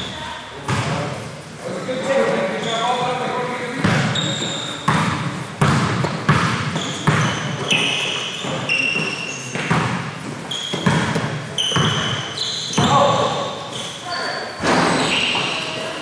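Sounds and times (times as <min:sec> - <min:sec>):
basketball bouncing on gym floor: 0:00.0 - 0:01.2, 0:03.7 - 0:13.5
short high squeaks: 0:02.5 - 0:03.1, 0:04.1 - 0:04.9, 0:06.8 - 0:09.5, 0:10.5 - 0:10.9, 0:11.6 - 0:16.0.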